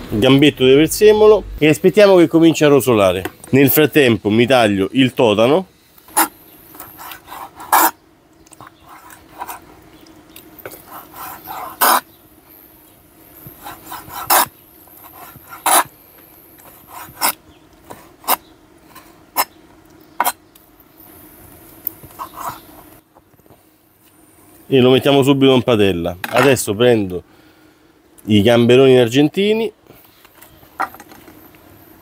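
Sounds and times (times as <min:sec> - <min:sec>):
knife scraping strokes: 0:06.1 - 0:09.6, 0:10.6 - 0:12.1, 0:13.5 - 0:15.9, 0:16.6 - 0:19.5, 0:22.1 - 0:22.8.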